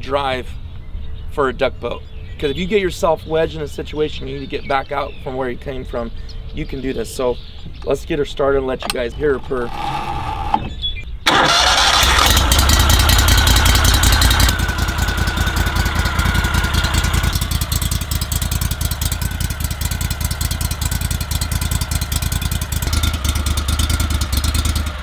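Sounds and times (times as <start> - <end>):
boat motor starting and idling: 8.7 - 25.0.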